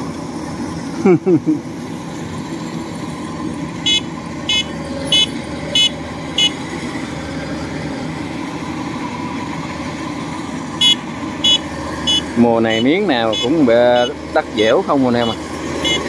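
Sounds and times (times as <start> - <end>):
diesel engine running: 0.0 - 16.0
short high beeps: 3.9 - 6.6, 10.8 - 14.2, 15.2 - 16.0.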